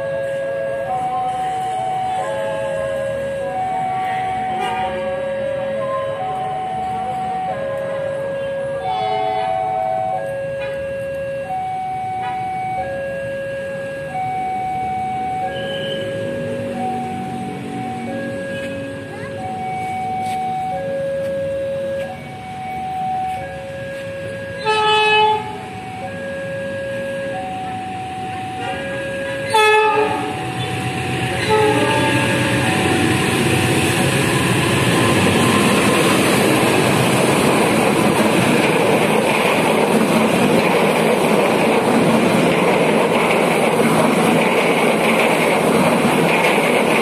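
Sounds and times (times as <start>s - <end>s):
level-crossing two-tone alarm: 0.0s - 47.0s
oncoming train rumble: 0.0s - 47.0s
locomotive horn blasts: 4.5s - 5.2s, 8.3s - 9.7s, 15.5s - 16.2s, 24.6s - 25.6s, 28.6s - 32.9s.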